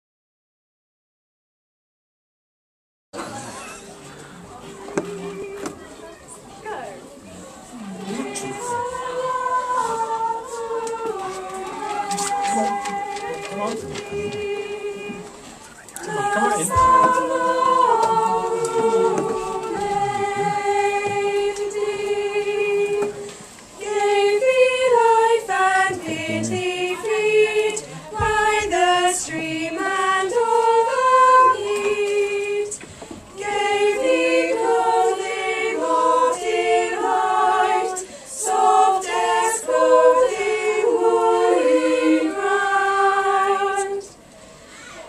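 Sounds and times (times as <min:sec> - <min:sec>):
children's choir singing: 0:03.2 - 0:06.5, 0:07.7 - 0:44.3.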